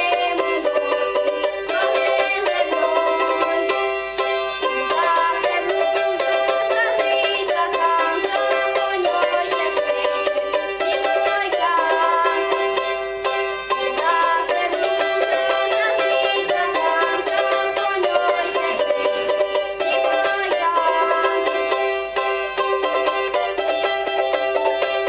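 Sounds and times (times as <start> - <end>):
plucked string tremolo melody: 0.0 - 25.0.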